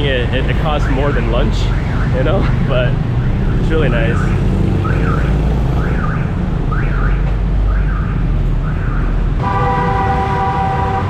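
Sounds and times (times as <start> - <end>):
street traffic engines rumbling: 0.0 - 11.0
electronic alarm wailing: 3.1 - 11.0
steady horn-like tone: 9.4 - 11.0.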